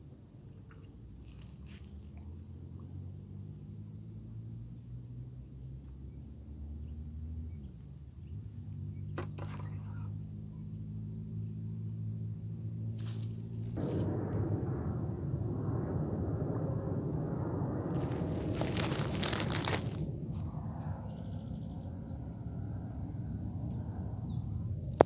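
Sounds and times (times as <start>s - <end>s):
insect chorus: 0.0s - 25.0s
rushing noise near microphone: 13.1s - 21.9s.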